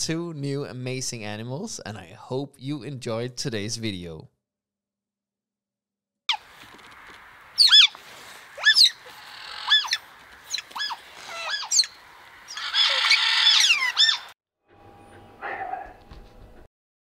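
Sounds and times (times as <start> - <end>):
otter chirping: 7.6 - 8.0, 8.6 - 14.3.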